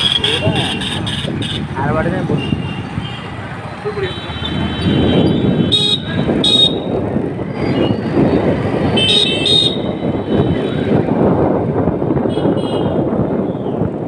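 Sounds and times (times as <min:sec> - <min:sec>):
vehicle horns beeping: 0:00.0 - 0:07.0, 0:08.8 - 0:10.9, 0:12.2 - 0:13.1
road traffic noise: 0:00.0 - 0:14.0.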